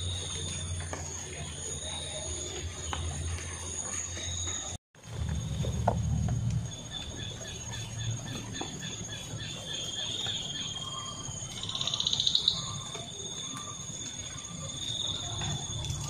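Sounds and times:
insects droning: 0.0s - 16.0s
short insect chirp: 6.7s - 16.0s.

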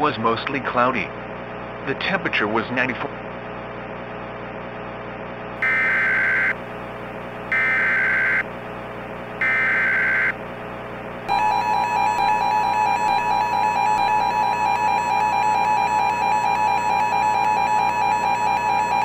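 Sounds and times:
raspy data bursts: 5.6s - 6.6s, 9.4s - 10.4s
two-tone attention signal: 5.6s - 6.6s.

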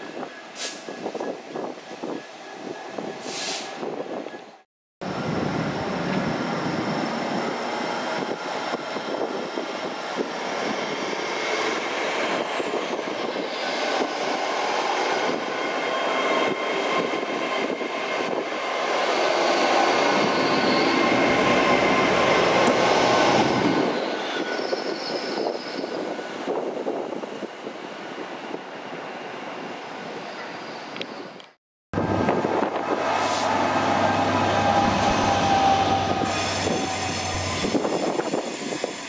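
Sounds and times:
train rumbling: 0.0s - 27.6s, 32.0s - 39.0s.

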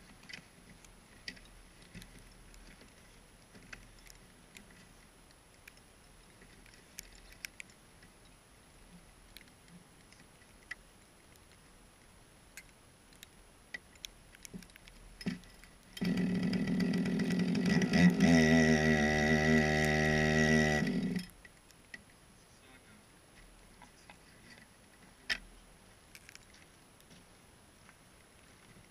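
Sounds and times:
chainsaw engine running and revving: 16.0s - 21.2s.

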